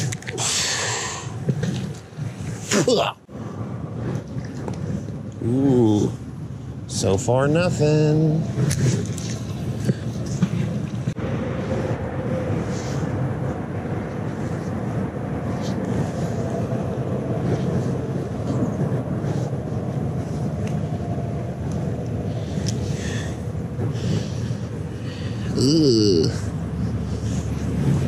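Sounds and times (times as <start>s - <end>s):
low outdoor rumble: 0.0s - 28.0s.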